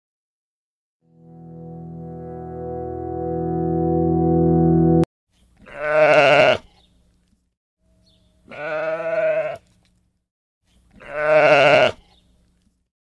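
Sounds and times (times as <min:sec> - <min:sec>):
sheep bleating: 0:05.6 - 0:06.8, 0:08.5 - 0:09.6, 0:11.0 - 0:12.1.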